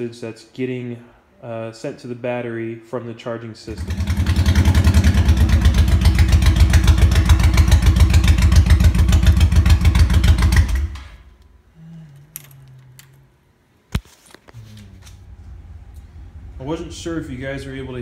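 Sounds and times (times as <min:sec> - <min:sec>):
motorcycle engine running: 0:03.8 - 0:11.0.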